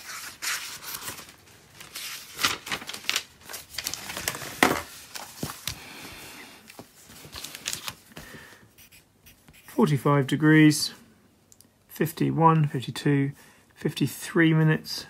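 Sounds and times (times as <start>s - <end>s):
paper rustling: 0.0s - 5.8s, 6.7s - 8.5s.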